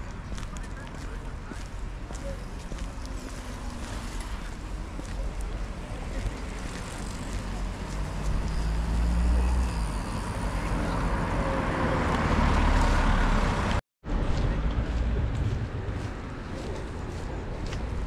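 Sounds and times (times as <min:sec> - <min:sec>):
car passing close by: 0:07.9 - 0:13.8.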